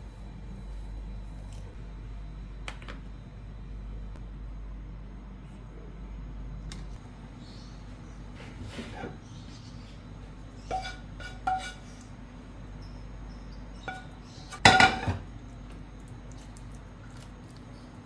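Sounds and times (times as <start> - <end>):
wooden spoon scraping a bowl: 10.6 - 12.1.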